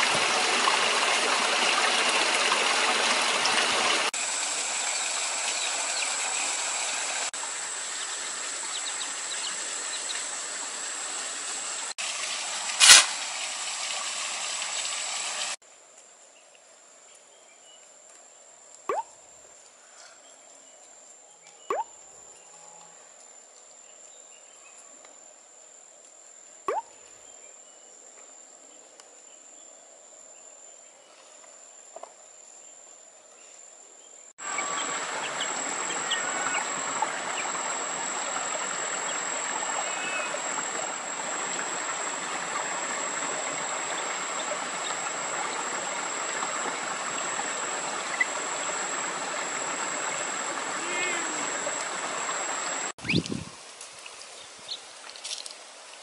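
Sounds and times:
dense hiss: 0:12.6 - 0:13.7.

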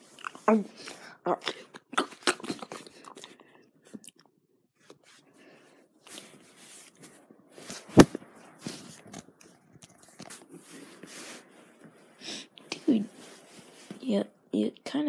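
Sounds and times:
sharp thump: 0:07.9 - 0:08.2
plush toys rustling: 0:12.8 - 0:14.2.

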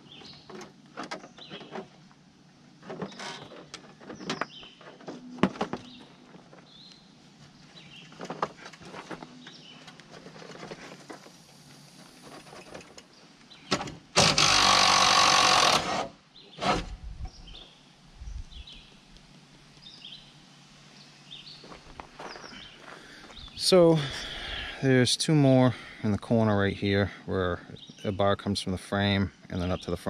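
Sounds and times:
birds chirping: 0:00.0 - 0:02.2, 0:02.9 - 0:13.8, 0:15.5 - 0:30.0
power tool spinning bolt: 0:14.1 - 0:17.0.

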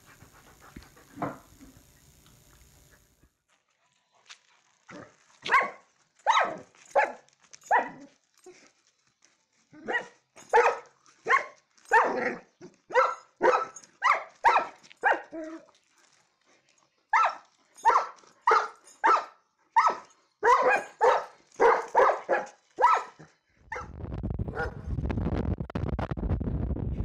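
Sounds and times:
puppy barking: 0:05.4 - 0:08.0, 0:09.8 - 0:15.4, 0:17.2 - 0:23.9, 0:24.5 - 0:24.8
wind rumble on microphone: 0:23.6 - 0:27.0.

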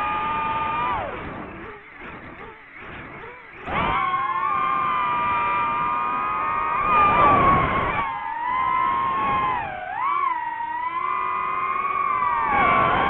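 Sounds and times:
drone propellers whining: 0:00.0 - 0:13.0.

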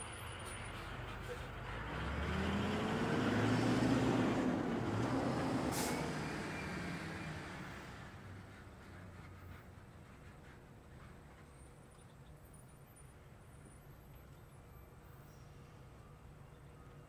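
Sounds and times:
motor vehicle passing by: 0:01.3 - 0:09.6.

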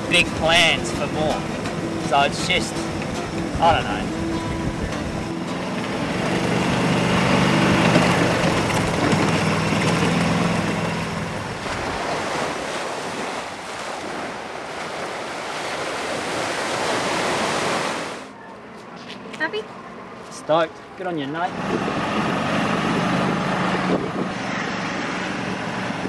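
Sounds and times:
golf cart humming: 0:00.0 - 0:13.6, 0:20.8 - 0:26.0
waves breaking on beach: 0:00.0 - 0:18.3
wind on microphone: 0:03.2 - 0:13.4, 0:21.5 - 0:26.0.

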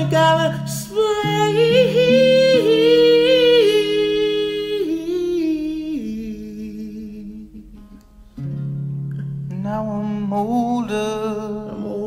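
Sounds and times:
wordless singing: 0:00.0 - 0:08.0
acoustic guitar chords: 0:00.0 - 0:12.0.

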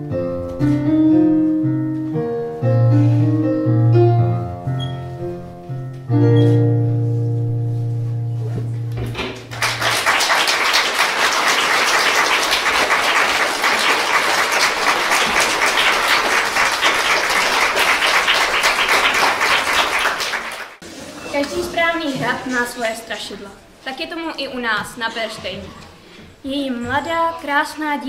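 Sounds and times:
music chord ringing: 0:00.0 - 0:09.9
audience applause: 0:09.4 - 0:20.8.

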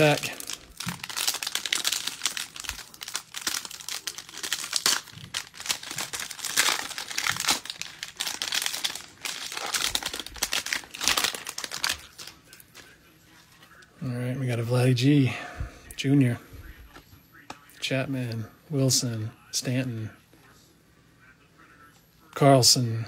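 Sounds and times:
foil wrapper crinkling: 0:00.0 - 0:13.7.

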